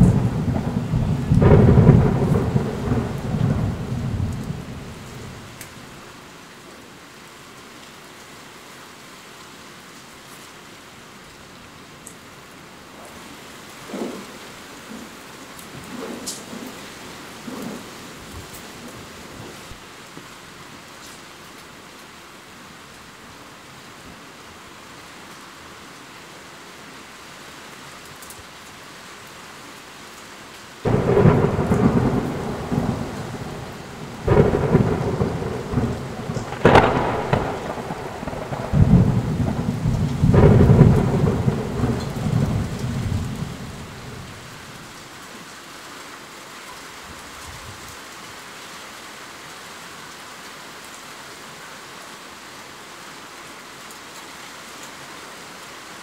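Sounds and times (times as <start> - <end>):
thunderclap: 0.0 - 5.5, 13.8 - 19.6, 30.9 - 44.5
low rolling thunder rumble: 0.0 - 5.6, 13.8 - 19.8, 30.8 - 45.0
steady rain: 0.0 - 56.0.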